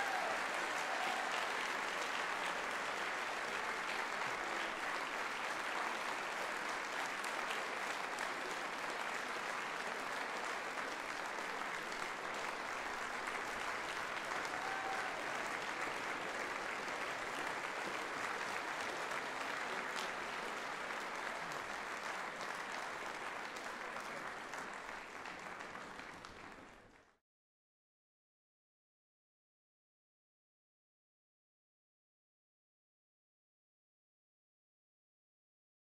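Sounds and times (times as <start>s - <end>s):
audience applauding: 0.0s - 27.2s.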